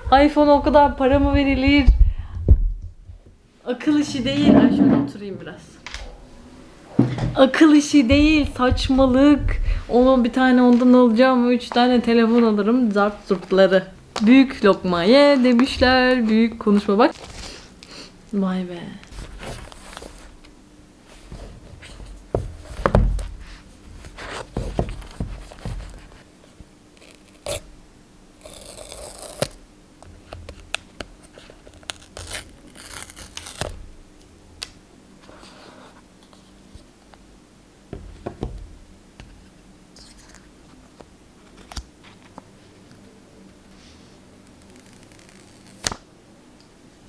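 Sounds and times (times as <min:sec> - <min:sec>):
paper seal tearing: 0:28.4 - 0:29.6, 0:31.7 - 0:33.8.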